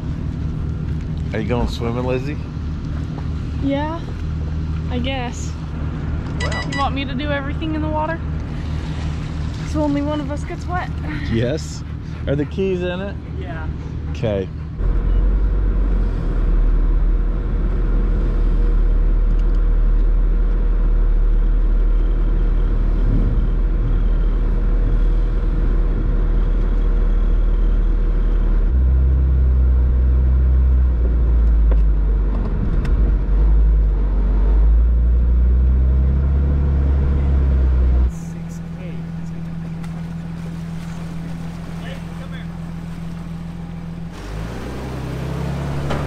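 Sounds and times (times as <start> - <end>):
engine low rumble: 0.0 - 46.0.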